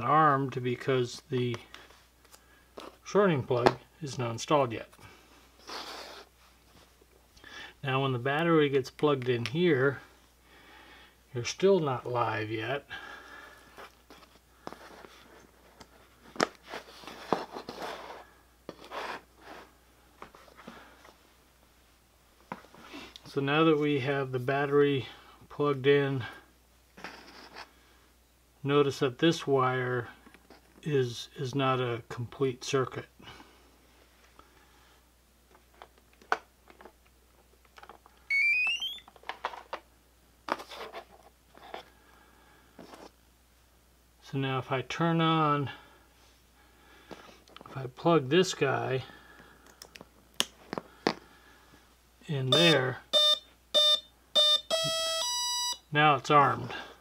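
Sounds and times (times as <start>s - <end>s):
rising electronic beep: 38.3s - 39.0s.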